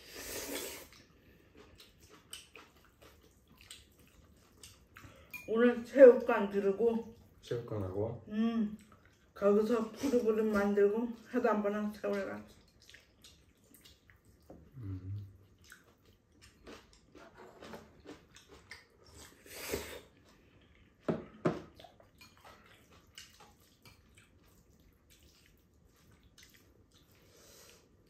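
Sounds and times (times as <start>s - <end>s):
chewing with wet smacks: 0.8s - 5.4s, 8.6s - 9.4s, 10.4s - 19.4s, 20.1s - 21.0s, 21.7s - 28.0s.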